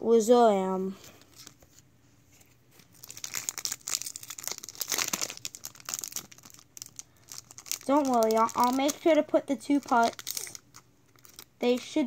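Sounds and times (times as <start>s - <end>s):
foil wrapper crinkling and tearing: 2.8s - 12.0s.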